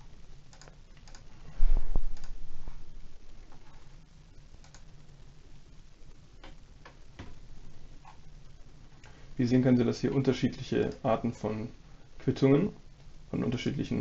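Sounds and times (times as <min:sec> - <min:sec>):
faint steady hum: 0:00.0 - 0:14.0
scroll wheel ticking: 0:00.4 - 0:01.3, 0:04.6 - 0:04.9
computer mouse clicking: 0:00.5 - 0:01.3, 0:02.1 - 0:02.4, 0:04.6 - 0:04.9.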